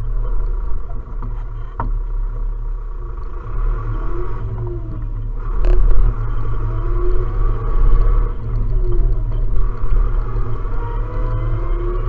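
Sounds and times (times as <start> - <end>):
tractor diesel engine droning: 0.0 - 12.0.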